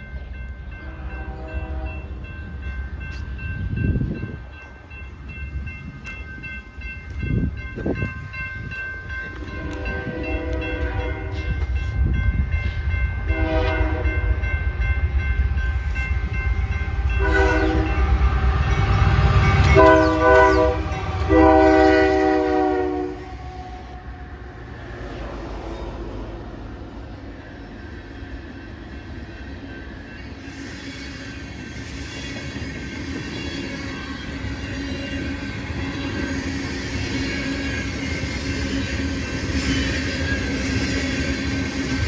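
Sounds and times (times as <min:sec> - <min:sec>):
locomotive engine and wheels rumbling: 0:00.0 - 0:42.0
train horn blasts: 0:00.7 - 0:02.2, 0:09.3 - 0:12.0, 0:13.2 - 0:14.5, 0:17.1 - 0:24.2.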